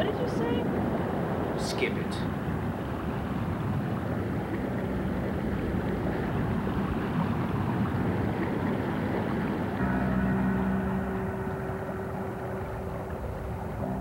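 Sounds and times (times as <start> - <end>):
low rushing noise: 9.6 - 14.0.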